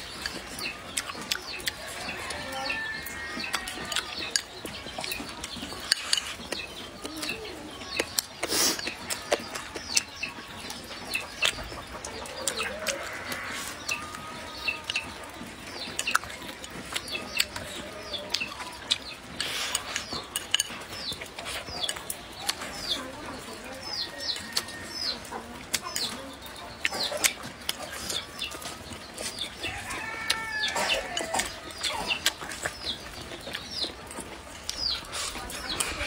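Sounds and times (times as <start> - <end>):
chewing: 0.0 - 36.0
chickens clucking: 0.0 - 36.0
small birds chirping: 0.0 - 36.0
chopsticks clicking against bowl: 16.0 - 23.0.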